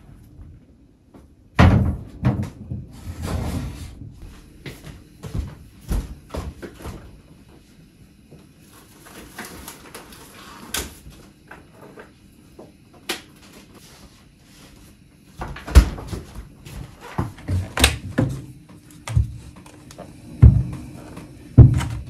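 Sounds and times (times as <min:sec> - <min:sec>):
refrigerator door: 0:01.6 - 0:03.9, 0:15.4 - 0:16.3, 0:21.6 - 0:22.0.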